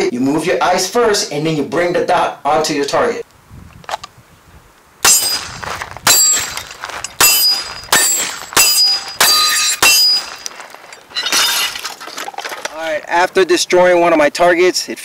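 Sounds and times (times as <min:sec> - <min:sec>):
handgun shots: 0:05.0 - 0:10.4.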